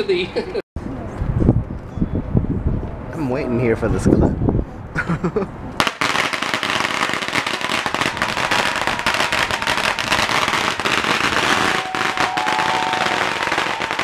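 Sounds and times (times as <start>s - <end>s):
firecrackers crackling: 5.8s - 14.0s.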